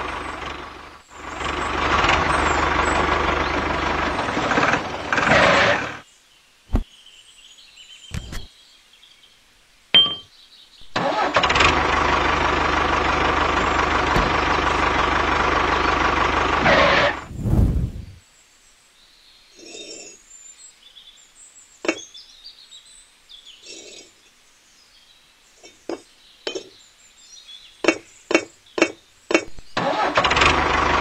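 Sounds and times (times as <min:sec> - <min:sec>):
tractor engine running: 0:00.0 - 0:06.0, 0:10.8 - 0:17.3, 0:29.5 - 0:31.0
short low thump: 0:17.3 - 0:18.2.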